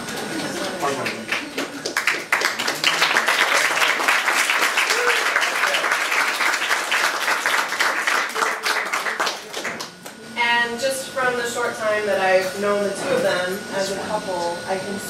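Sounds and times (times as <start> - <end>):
people applauding: 0.0 - 10.2.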